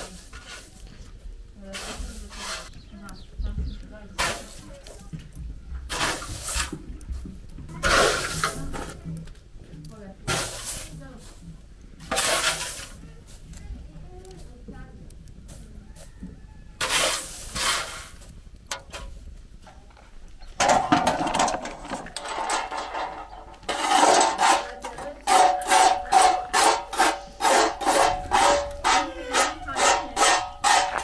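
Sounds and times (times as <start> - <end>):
metal spatula scraping griddle: 0.0 - 0.9, 1.7 - 2.8, 4.2 - 4.6, 5.9 - 6.8, 7.8 - 9.0, 10.3 - 11.4, 12.0 - 13.0, 16.8 - 19.2, 20.5 - 31.0.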